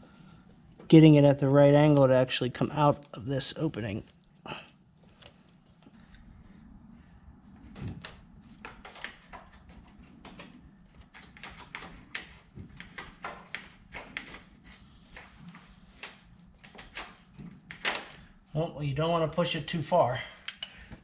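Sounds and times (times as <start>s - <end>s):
low steady hum: 0.0s - 13.2s.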